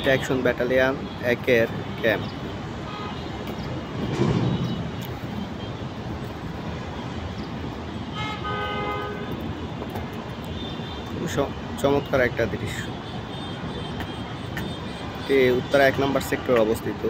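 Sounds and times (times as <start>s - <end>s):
road traffic noise: 0.0s - 17.0s
vehicle horn: 2.9s - 3.4s, 8.0s - 9.4s.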